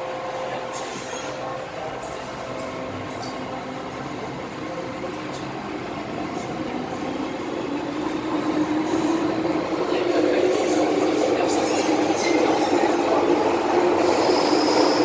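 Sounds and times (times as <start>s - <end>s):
train running hum: 0.0s - 15.0s
train traction motors whining: 4.2s - 15.0s.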